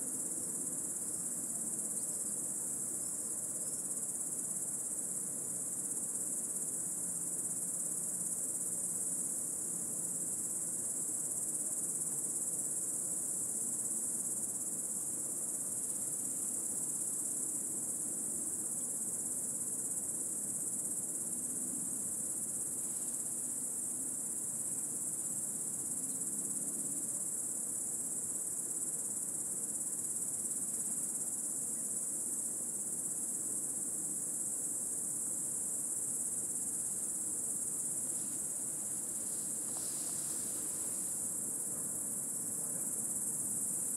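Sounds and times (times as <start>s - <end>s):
cicadas singing: 35.0s - 43.9s.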